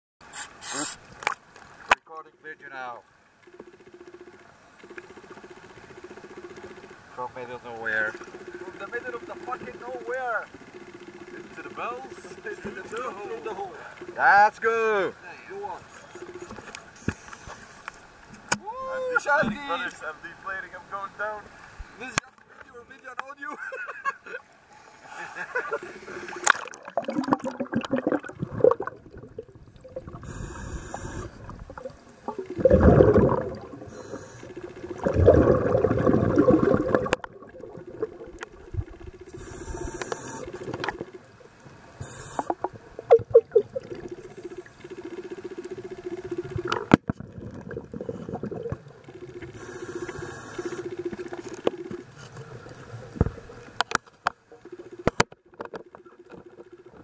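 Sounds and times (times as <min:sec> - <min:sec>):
scuba regulator inhale hiss: 0:00.2 - 0:01.1, 0:30.2 - 0:31.4, 0:39.3 - 0:40.5, 0:42.0 - 0:42.6, 0:49.5 - 0:50.9
exhaled bubbles rushing: 0:26.3 - 0:41.3, 0:42.6 - 0:53.6.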